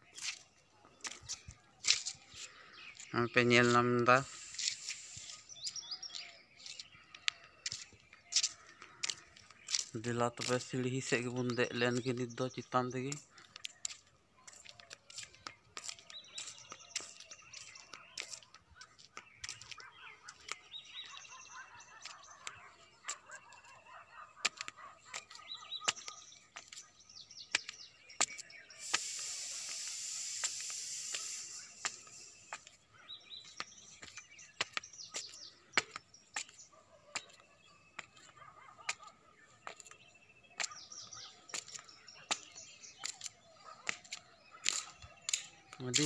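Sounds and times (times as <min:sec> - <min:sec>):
small birds chirping: 0:00.0 - 0:46.0
loud hiss: 0:04.3 - 0:05.5, 0:28.8 - 0:32.6
footsteps on hard steps: 0:24.4 - 0:32.8, 0:33.4 - 0:40.0.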